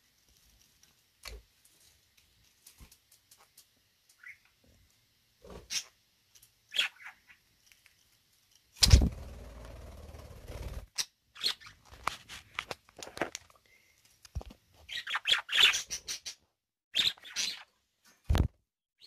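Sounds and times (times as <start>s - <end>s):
low hum: 8.9s - 10.8s
budgerigars chirping: 14.9s - 16.4s, 17.0s - 17.7s.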